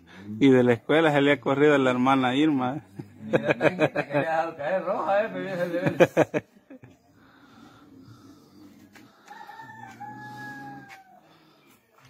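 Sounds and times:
rooster crowing: 9.1 - 11.4.

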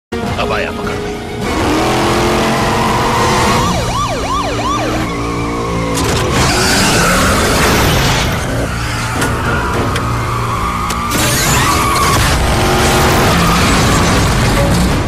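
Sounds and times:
car engine running hard: 0.9 - 11.3, 12.0 - 15.0
tyres screeching: 1.4 - 14.8
siren yelps: 2.7 - 7.5.

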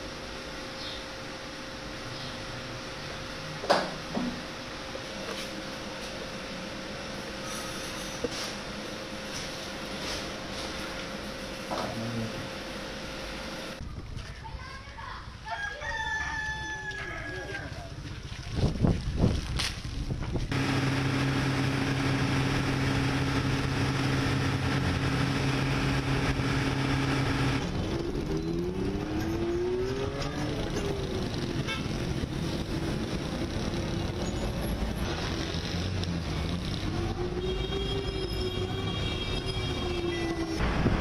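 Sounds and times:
vehicle engines running: 20.4 - 41.0
motorcycles passing: 20.5 - 40.0.

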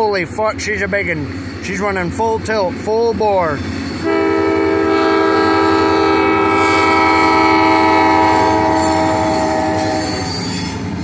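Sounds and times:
low rumble of train: 0.0 - 11.0
locomotive air horn: 4.0 - 10.8.

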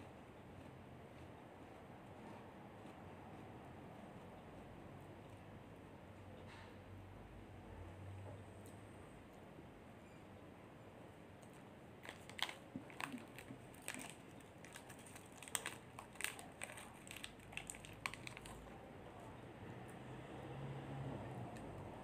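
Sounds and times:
packet crinkling and tearing: 12.0 - 18.7.

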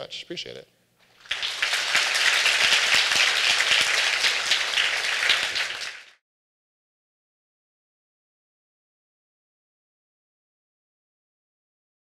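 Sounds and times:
audience applauding: 1.1 - 6.2.

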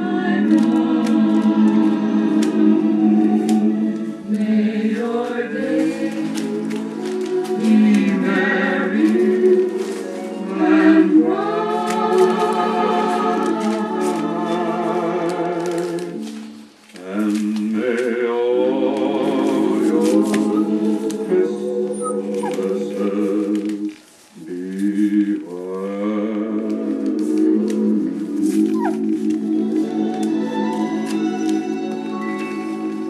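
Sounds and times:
choir singing: 0.0 - 16.4, 17.0 - 33.0.

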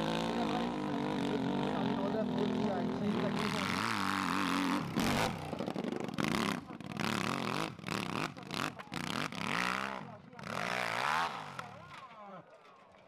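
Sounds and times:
motorcycle engine revving hard: 0.0 - 11.8.

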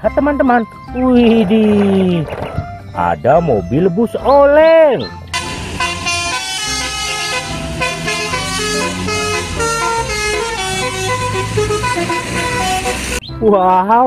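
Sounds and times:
bus low rumble: 0.7 - 13.3
multi-tone bus horn tune: 5.3 - 13.2.

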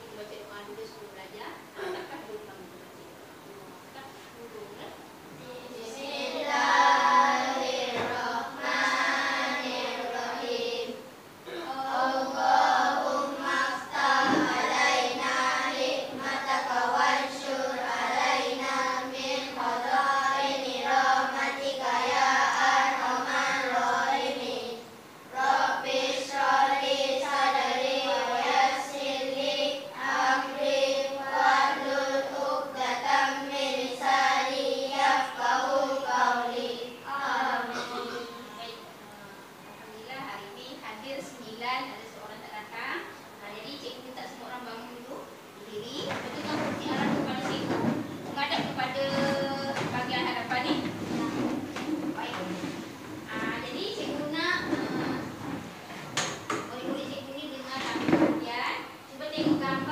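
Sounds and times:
children singing in unison: 5.5 - 38.5, 49.0 - 49.9.

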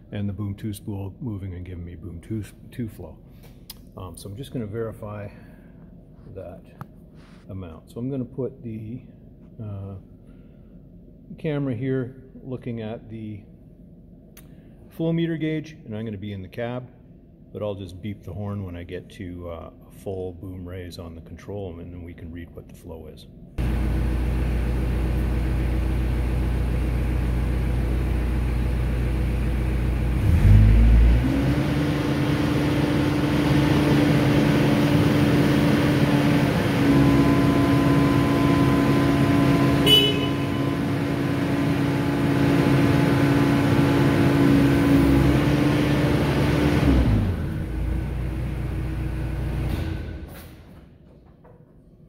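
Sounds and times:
excavator diesel engine: 23.6 - 50.2
short horn beep: 39.7 - 40.9.

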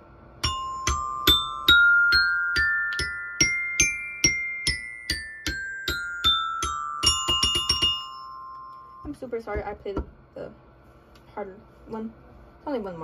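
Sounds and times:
glockenspiel scale: 0.4 - 9.2.

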